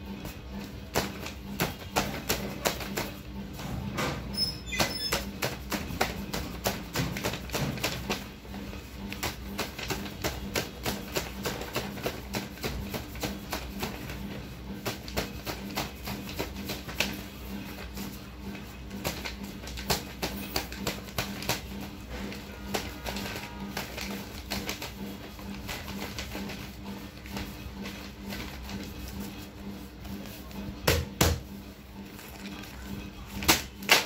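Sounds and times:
paper envelopes slapped on stack: 0.9s - 3.2s, 4.8s - 8.3s, 9.1s - 14.2s, 14.8s - 17.3s, 19.0s - 28.8s, 33.3s - 34.0s.

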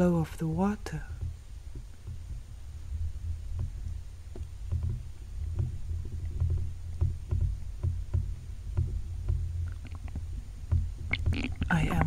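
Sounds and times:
underwater rumble and gurgle: 1.0s - 12.0s
small clicks and pops: 3.5s - 12.0s.

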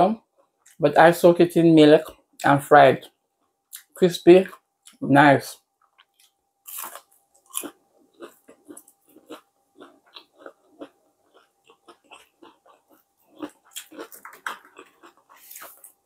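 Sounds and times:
crunchy chewing mouth clicks: 5.8s - 16.0s.

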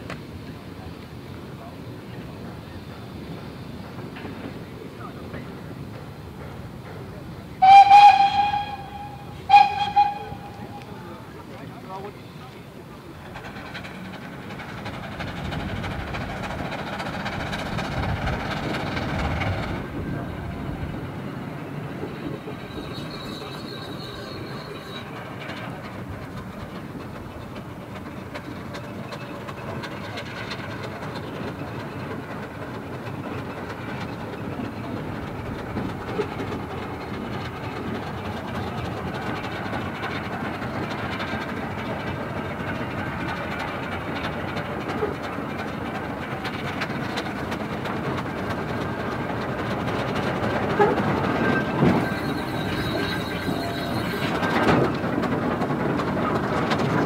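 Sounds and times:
wheels rumbling over rails: 0.0s - 57.0s
steam hissing: 0.5s - 34.9s, 51.4s - 55.2s.

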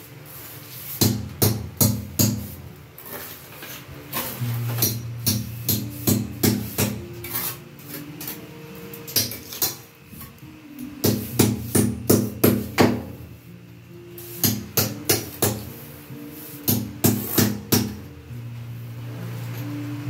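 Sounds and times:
background music: 4.2s - 20.0s.

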